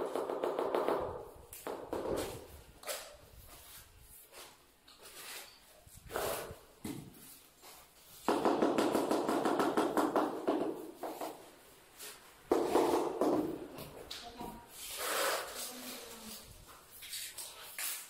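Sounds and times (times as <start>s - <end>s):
tile scraping on adhesive: 2.1s - 6.6s, 14.7s - 16.4s.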